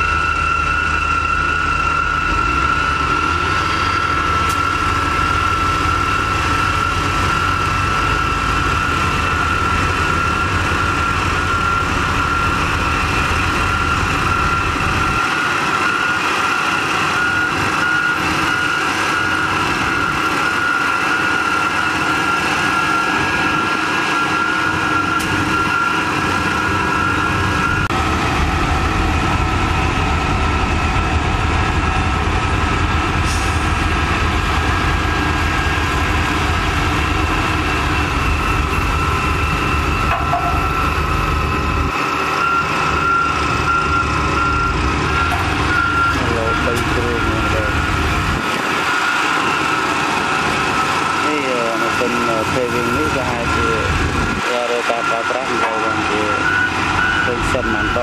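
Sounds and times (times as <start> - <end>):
high engine whine: 0.0 - 58.0
low engine rumble: 21.4 - 58.0.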